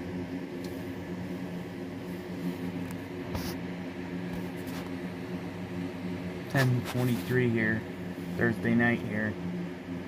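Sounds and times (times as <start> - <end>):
appliance humming: 0.0 - 10.0.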